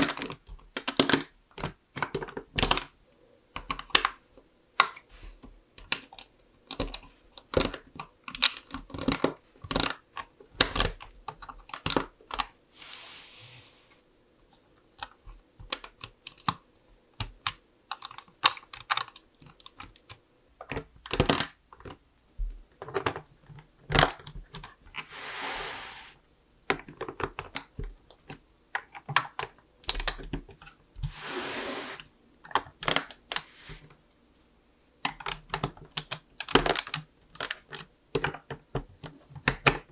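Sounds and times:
plastic bricks clicking and rattling: 0.0s - 3.0s, 5.8s - 12.5s, 17.2s - 22.0s, 35.0s - 39.9s.

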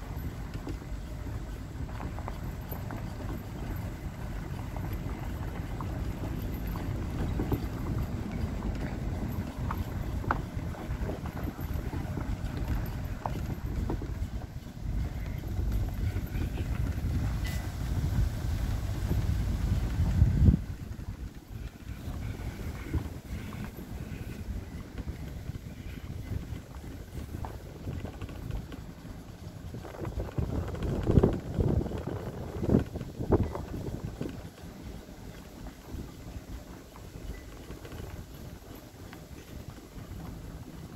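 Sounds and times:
truck rumbling over gravel: 0.0s - 40.9s
wind buffeting microphone: 0.0s - 40.9s
small clicks and rattles: 20.8s - 40.9s.

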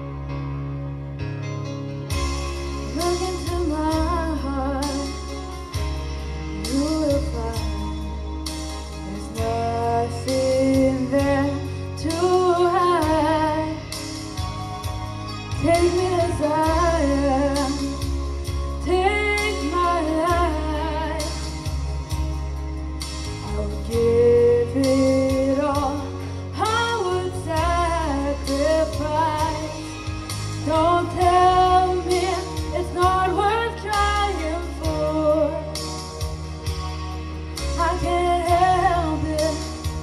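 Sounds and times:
instrumental accompaniment: 0.0s - 40.0s
boy singing into a microphone: 9.1s - 13.8s, 18.8s - 21.4s, 23.5s - 29.8s, 30.6s - 35.7s.

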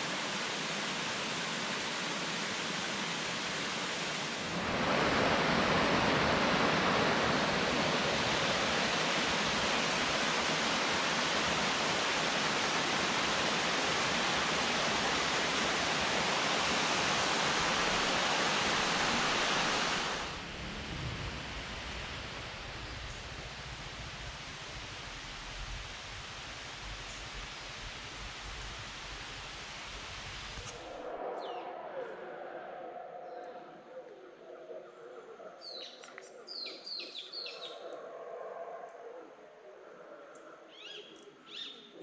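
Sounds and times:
water rushing over rocks: 0.0s - 20.4s
forest ambience: 22.0s - 42.0s.

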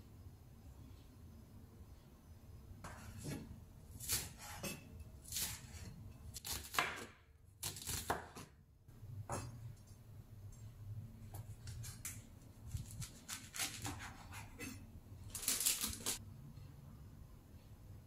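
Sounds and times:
knife chopping on wooden board: 2.8s - 8.5s, 13.1s - 14.8s.

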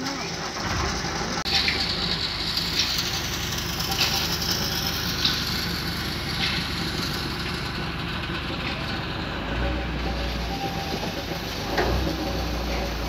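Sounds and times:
machine motor and gearing drone: 0.0s - 13.0s
high-pitched roller squeal: 9.6s - 13.0s.

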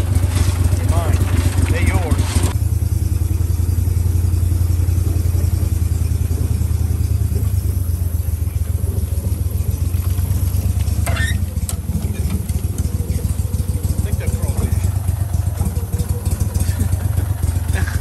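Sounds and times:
boat motor humming: 0.0s - 18.0s
brief squeak: 11.0s - 11.5s.

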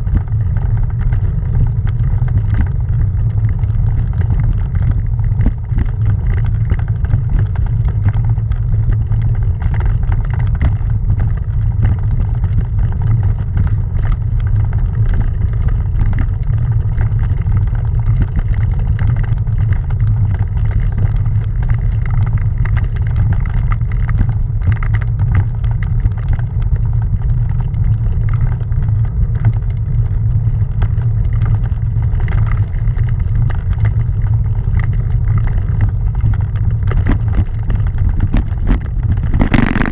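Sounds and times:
bike rolling over cobblestones: 0.0s - 39.9s
camera rattling clicks: 37.0s - 39.9s.

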